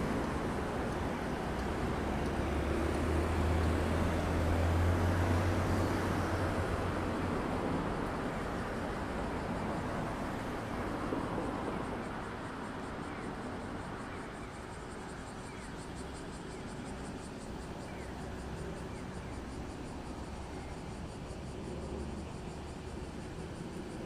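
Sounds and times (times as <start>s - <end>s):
traffic rushing: 0.0s - 14.1s
wind: 0.0s - 24.0s.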